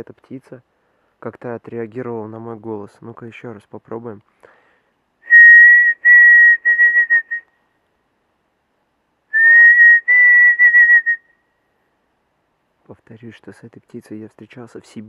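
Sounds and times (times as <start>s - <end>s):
man whistling bird-like call: 5.2s - 7.5s, 9.3s - 11.4s.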